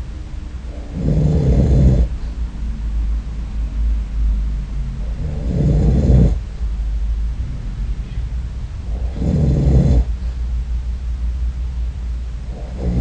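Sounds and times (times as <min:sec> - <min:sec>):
low rumble: 0:00.0 - 0:13.0
man snoring: 0:00.7 - 0:02.1, 0:05.0 - 0:06.4, 0:08.8 - 0:10.1, 0:12.5 - 0:13.0.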